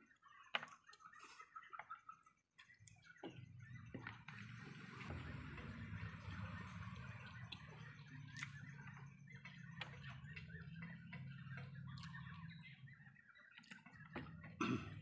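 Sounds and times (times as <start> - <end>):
birds chirping: 0.0 - 15.0
low hum: 3.4 - 15.0.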